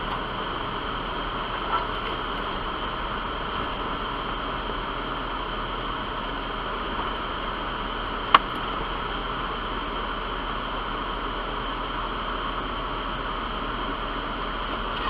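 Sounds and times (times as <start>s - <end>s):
vehicle driving on gravel: 0.0s - 9.8s.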